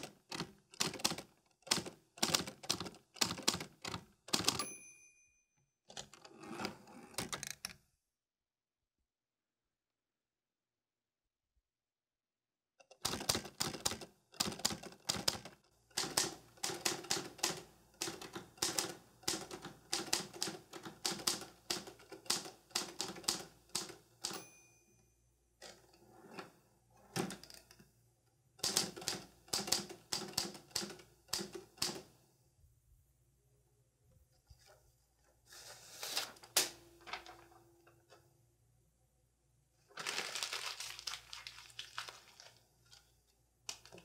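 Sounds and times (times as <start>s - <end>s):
typewriter keys clacking: 0.0s - 4.6s, 13.0s - 24.4s
typewriter bell ringing: 4.4s - 5.4s, 24.2s - 25.1s.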